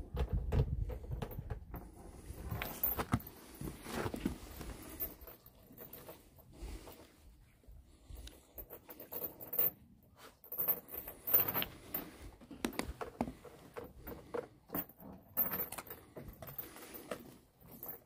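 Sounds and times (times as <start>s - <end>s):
metal chain rattling on wooden deck: 0.0s - 7.3s, 7.9s - 18.0s.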